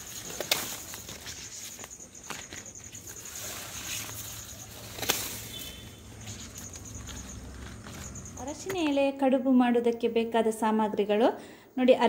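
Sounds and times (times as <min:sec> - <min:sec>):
leaf snapping: 0:00.0 - 0:02.6, 0:03.8 - 0:05.9
leaves rustling: 0:00.0 - 0:08.8
insects chirping: 0:00.0 - 0:09.0.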